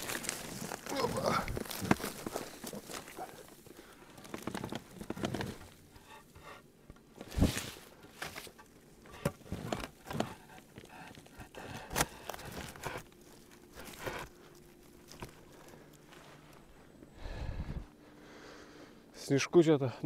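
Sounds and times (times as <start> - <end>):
footsteps crunching in snow: 0.0 - 3.5, 12.4 - 17.0
rustling: 0.0 - 17.0.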